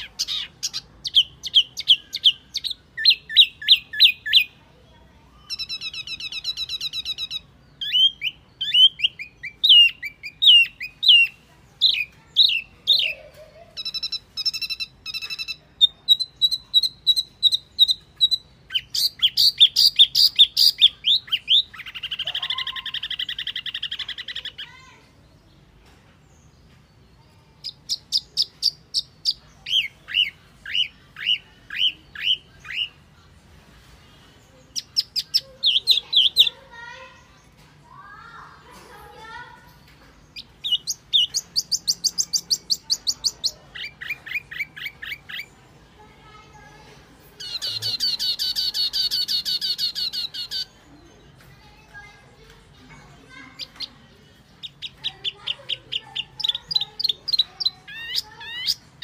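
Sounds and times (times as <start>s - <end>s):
bird chirps and buzzy trills: 34.6s - 52.4s.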